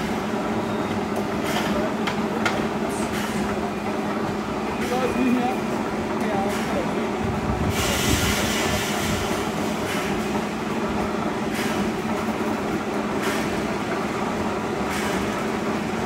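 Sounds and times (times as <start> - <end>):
rush of sharper machine noise: 7.6 - 16.0.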